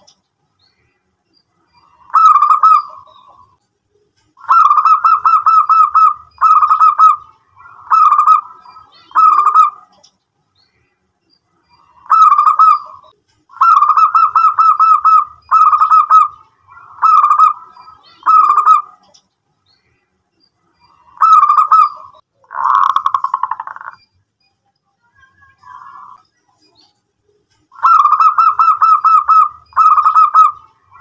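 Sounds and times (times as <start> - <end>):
dove cooing: 1.8 - 3.5, 4.4 - 9.9, 11.8 - 19.1, 21.0 - 24.0, 27.8 - 31.0.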